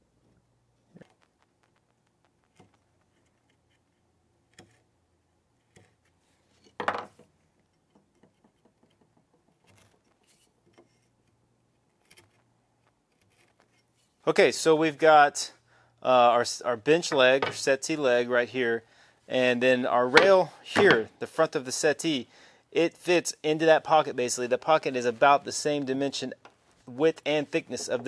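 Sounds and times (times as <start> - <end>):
chisel scraping wood: 2.5 - 4.9, 11.9 - 14.0.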